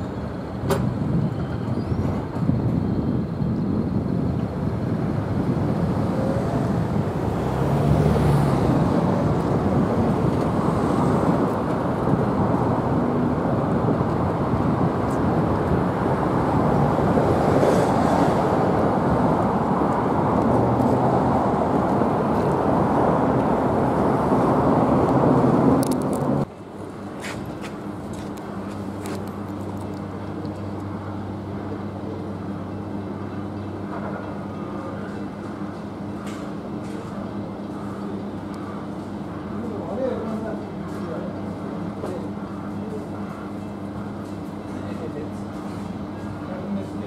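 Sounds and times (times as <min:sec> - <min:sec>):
railcar engine and wheels rumbling: 0:00.0 - 0:47.0.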